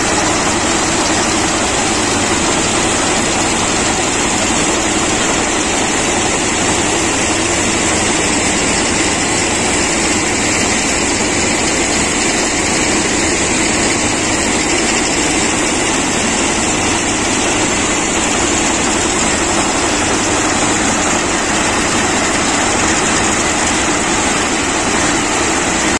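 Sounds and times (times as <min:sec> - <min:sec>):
ballast cleaning machine din: 0:00.0 - 0:25.9.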